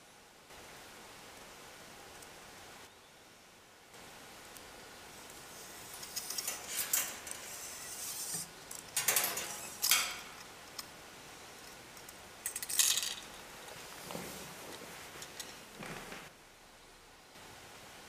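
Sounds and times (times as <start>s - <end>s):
low steady hiss: 0.0s - 18.0s
metal spring and cable rattling: 5.6s - 10.5s.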